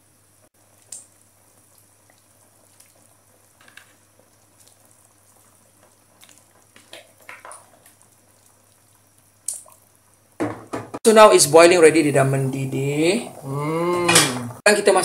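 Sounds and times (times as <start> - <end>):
soup bubbling with pops: 0.6 - 11.0.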